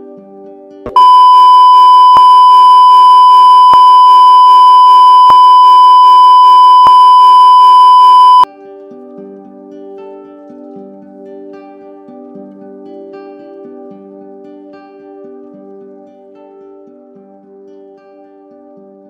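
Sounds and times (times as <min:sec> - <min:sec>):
soft music: 0:00.0 - 0:00.9, 0:08.5 - 0:19.0
high-pitched electronic beep tone: 0:00.9 - 0:08.5.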